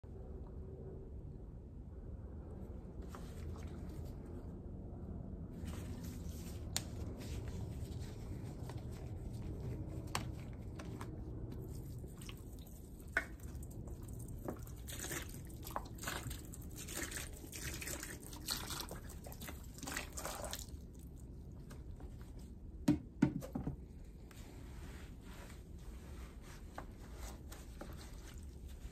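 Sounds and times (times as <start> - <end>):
liquid pouring and glugging: 11.6 - 21.2.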